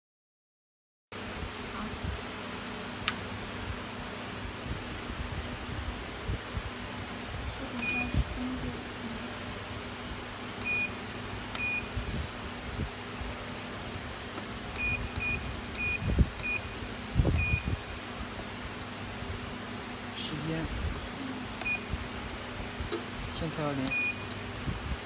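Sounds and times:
steady low hum: 1.2s - 25.0s
control panel beeps: 7.8s - 8.2s, 10.6s - 11.9s, 14.8s - 16.8s, 17.4s - 17.7s, 21.6s - 21.9s, 23.8s - 24.4s.

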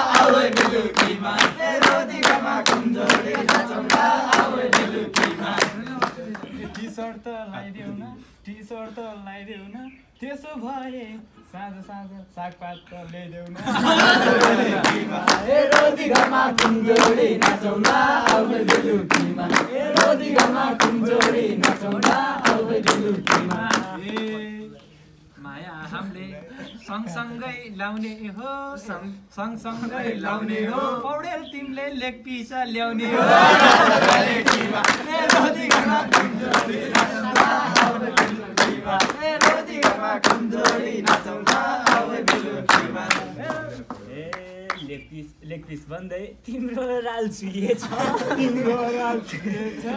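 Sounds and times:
people singing folk song: 0.0s - 6.8s, 13.6s - 24.8s, 33.0s - 44.1s
hand clapping: 0.0s - 6.9s, 12.5s - 24.9s, 33.3s - 44.9s
men laughing and calling out: 13.6s - 15.2s, 47.4s - 49.9s.

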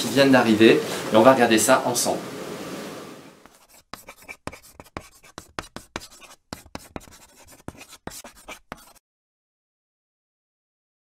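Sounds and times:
chalk scratching on pavement: 3.4s - 9.0s.

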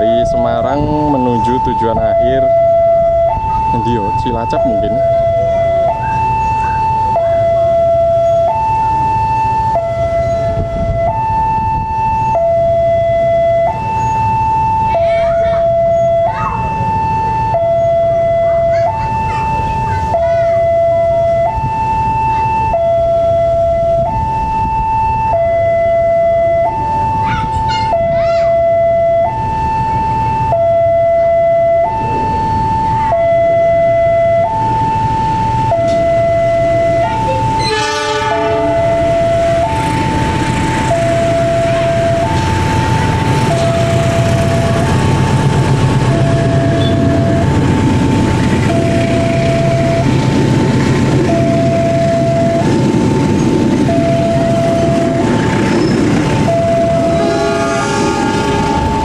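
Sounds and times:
level crossing two-tone alarm: 0.0s - 50.4s, 51.2s - 59.0s
diesel locomotive running: 0.0s - 59.0s
carriages rolling on rails: 34.5s - 59.0s
train horn blast: 37.6s - 39.2s, 56.9s - 59.0s.

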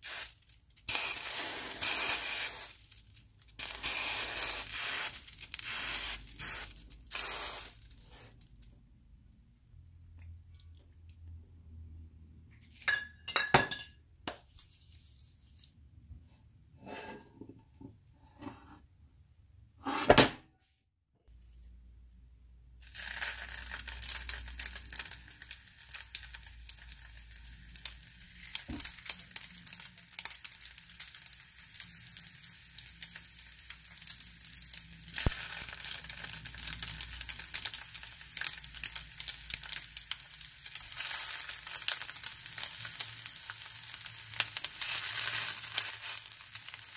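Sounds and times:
oil sizzling and crackling: 0.0s - 8.8s, 22.8s - 46.9s.

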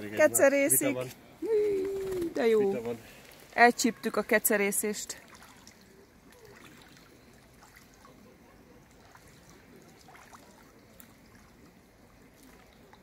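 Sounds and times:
low steady hiss: 0.0s - 13.0s
duck splashing in water: 5.1s - 13.0s.

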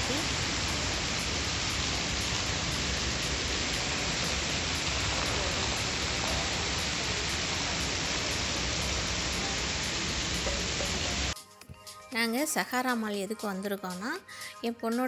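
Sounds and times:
fountain water splashing: 0.0s - 11.4s.

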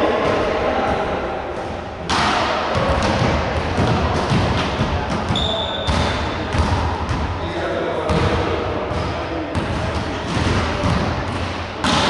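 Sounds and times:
echoing hall noise: 0.0s - 12.0s
volleyball being hit: 9.5s - 12.0s.

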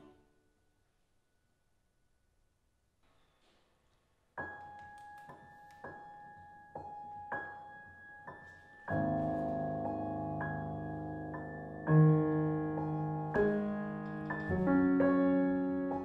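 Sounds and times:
grand piano playing: 5.9s - 16.0s.

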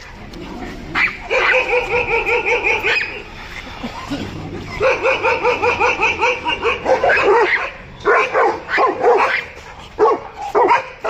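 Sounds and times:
dog barking aggressively: 0.9s - 3.3s, 4.6s - 11.0s.

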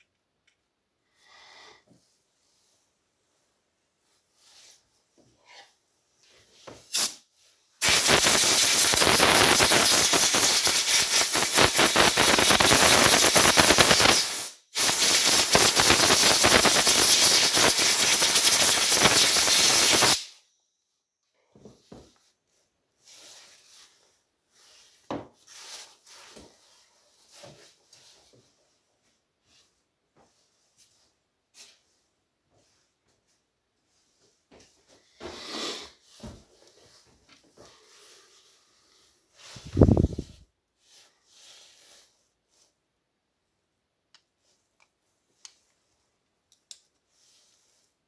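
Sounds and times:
pressurised spray hissing: 7.8s - 20.3s.

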